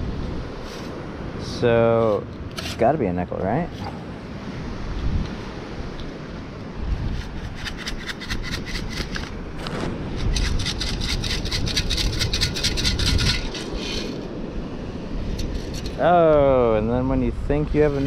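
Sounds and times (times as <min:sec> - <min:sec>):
sand rattling through metal scoop: 0:07.2 - 0:14.2.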